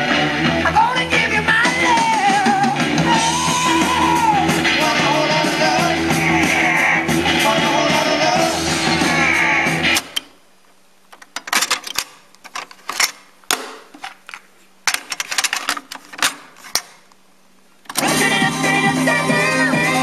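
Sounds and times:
rock music: 0.0 - 10.1, 18.0 - 20.0
cassette deck clicks and clunks: 11.1 - 17.0.

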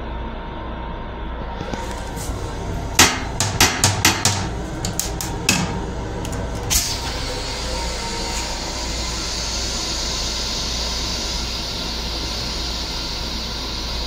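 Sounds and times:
low rumble of moving train: 0.0 - 14.0
plastic toilet seat clacking: 3.0 - 6.6
steady hiss: 6.7 - 14.0.

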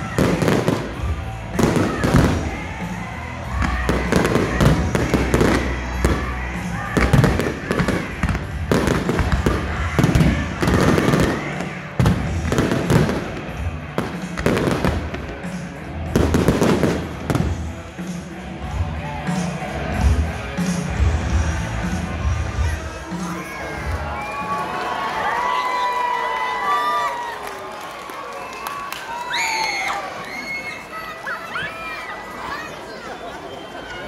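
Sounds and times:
fireworks bursting: 0.0 - 18.1
music over sound system: 0.0 - 24.8.

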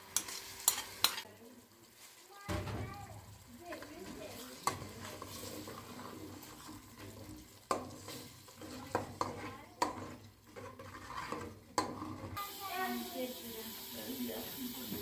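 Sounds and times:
metal utensil scraping pot: 0.0 - 1.3, 3.7 - 12.4.

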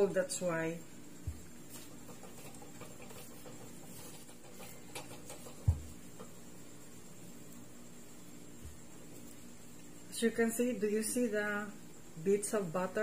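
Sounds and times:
rolling pin scraping on dough: 1.4 - 6.4.

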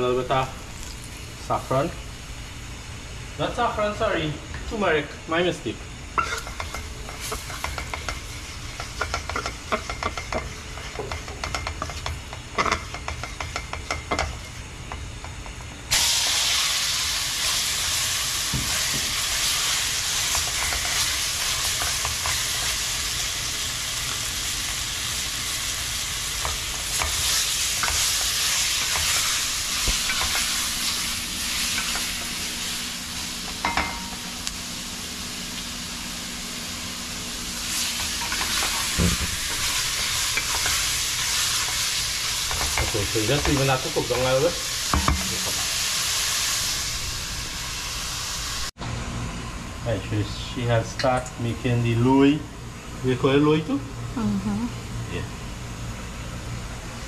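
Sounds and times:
chicken sizzling in hot oil: 3.2 - 48.8.

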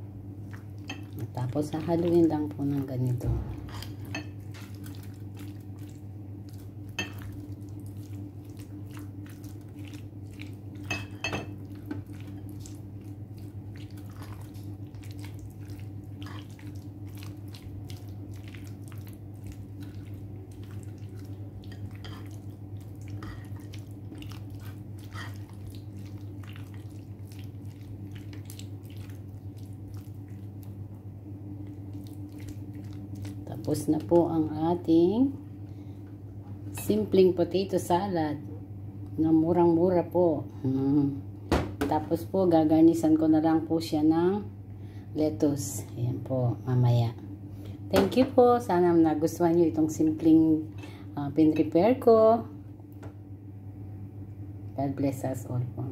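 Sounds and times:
steady low hum: 0.0 - 55.9
wet squishing of potato salad: 3.7 - 34.4.

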